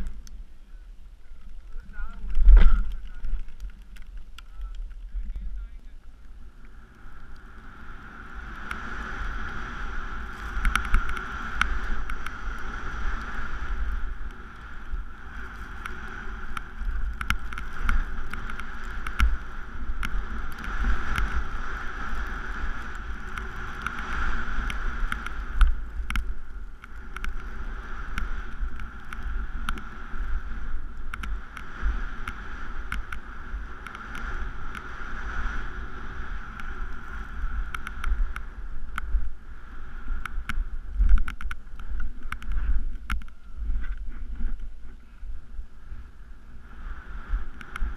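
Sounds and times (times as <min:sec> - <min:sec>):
low buffeting rumble: 0:00.0 - 0:47.9
rush of wind and snow: 0:00.0 - 0:47.9
sharp clicks: 0:40.2 - 0:43.5.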